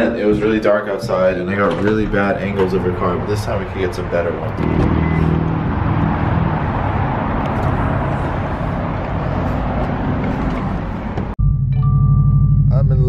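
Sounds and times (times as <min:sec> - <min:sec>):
car engine idling: 0:01.8 - 0:11.4.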